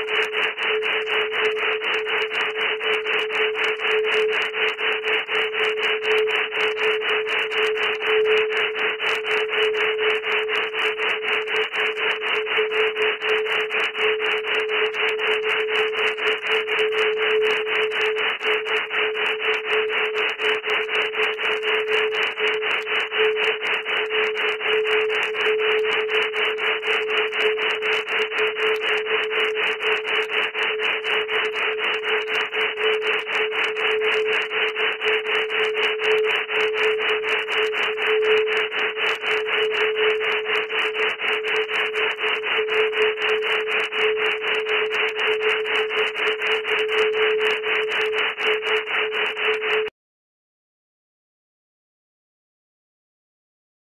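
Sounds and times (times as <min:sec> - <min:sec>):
steady mid-pitched tone: 0:00.0 - 0:49.9
rapidly pulsing rasping noise: 0:00.1 - 0:49.9.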